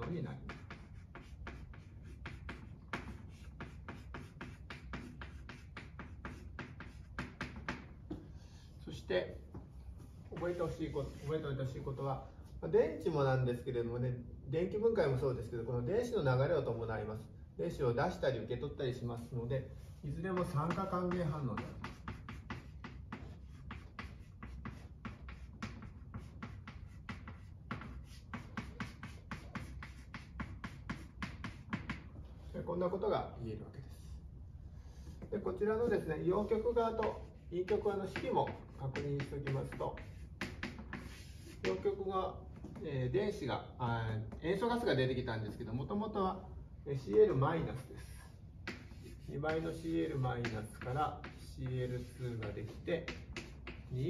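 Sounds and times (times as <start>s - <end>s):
chalk scratching on blackboard: 0.0s - 8.0s, 10.0s - 12.6s, 19.2s - 32.1s, 34.8s - 42.0s, 47.1s - 54.0s.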